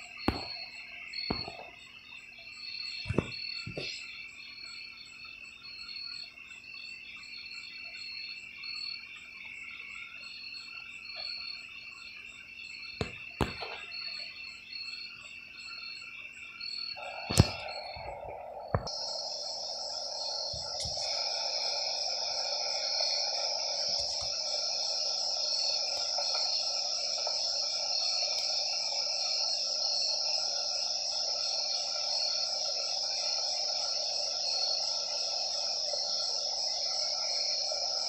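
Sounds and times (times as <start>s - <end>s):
steady hiss: 0.0s - 6.7s, 12.7s - 14.7s, 16.8s - 38.0s
crickets chirping: 0.0s - 38.0s.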